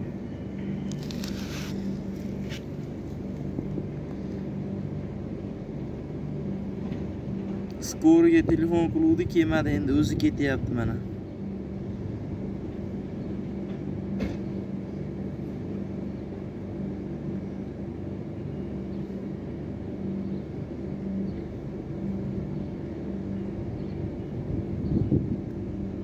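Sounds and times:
low rumble: 0:00.0 - 0:17.7, 0:18.3 - 0:26.0
steady low hum: 0:00.0 - 0:26.0.

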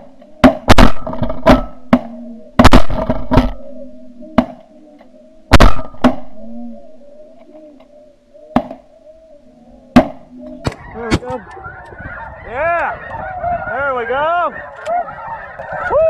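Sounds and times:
flock of geese honking: 0:00.0 - 0:16.0
shotgun shots: 0:00.4 - 0:03.6, 0:05.5 - 0:06.3.

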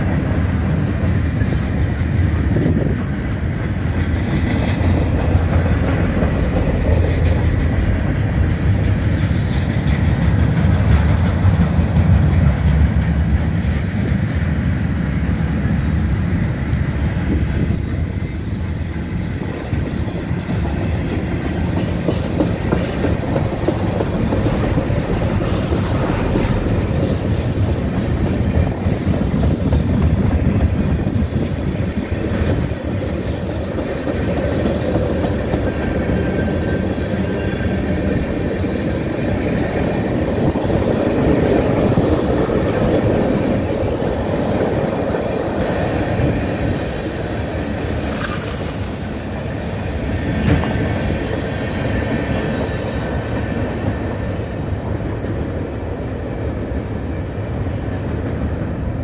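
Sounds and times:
clacks over rail joints: 0:00.0 - 0:16.8, 0:19.4 - 0:46.4
train wheels rumbling on rail: 0:00.0 - 0:59.0
high wheel squeal: 0:43.5 - 0:49.8.

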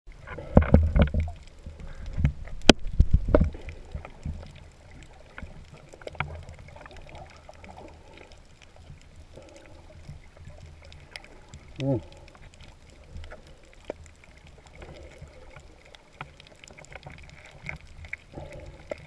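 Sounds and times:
muffled underwater rumble: 0:00.1 - 0:19.0.

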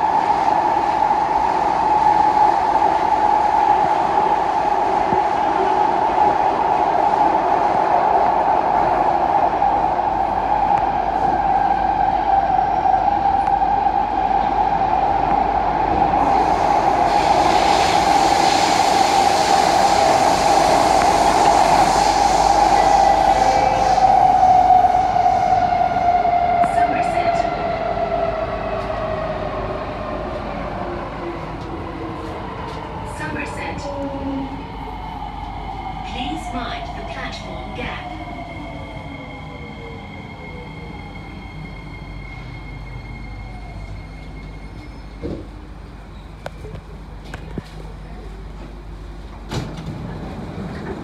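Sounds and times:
train running noise: 0:00.0 - 0:51.0
hiss: 0:16.4 - 0:24.4.

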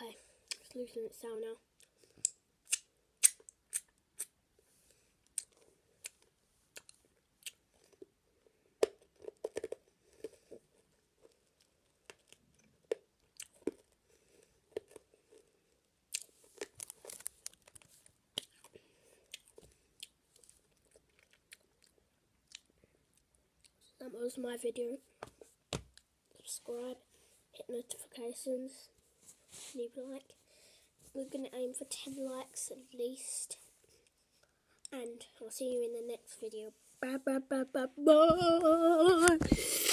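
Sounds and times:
child crunching hard candy: 0:08.8 - 0:10.6, 0:11.2 - 0:22.7.

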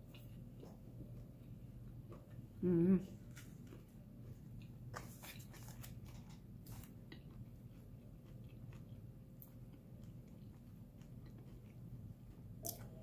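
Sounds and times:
low steady hum: 0:00.0 - 0:13.0
chewing crispy food: 0:03.1 - 0:13.0.

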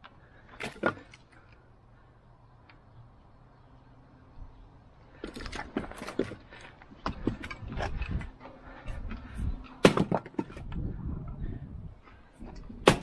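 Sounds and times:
splitting maul cracking wood: 0:09.8 - 0:10.6, 0:12.8 - 0:13.0
wood pieces knocking and clattering: 0:09.8 - 0:10.8.

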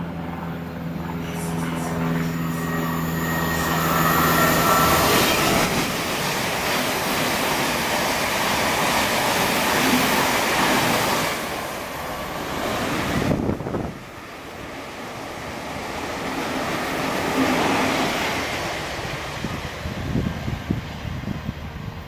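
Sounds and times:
train wheel and rail noise: 0:00.0 - 0:22.0.

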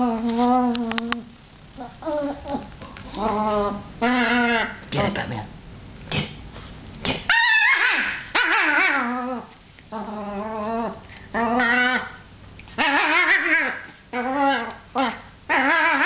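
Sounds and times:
dog whining and yipping: 0:07.3 - 0:12.2, 0:12.8 - 0:16.0.

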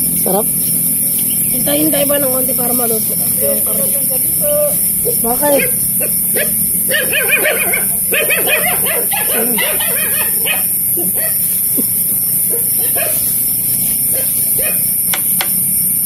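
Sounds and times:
steady high hiss: 0:00.0 - 0:16.0
small dog yapping: 0:05.6 - 0:11.4, 0:12.5 - 0:13.2, 0:14.1 - 0:14.9.

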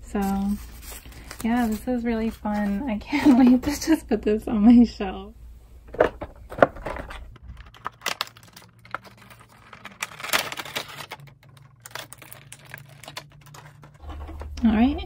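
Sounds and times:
packaging crinkling: 0:06.5 - 0:14.6.

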